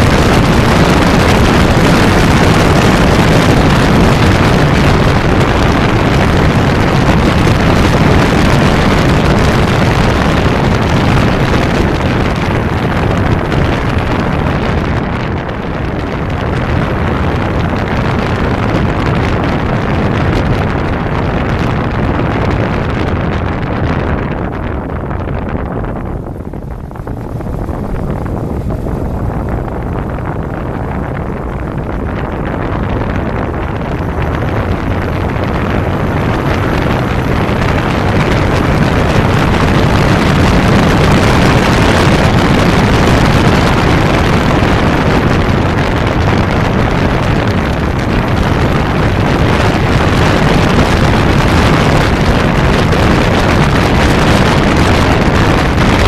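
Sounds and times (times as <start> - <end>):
motorcycle engine running: 0.0 - 56.0
wind rushing over microphone: 0.0 - 56.0.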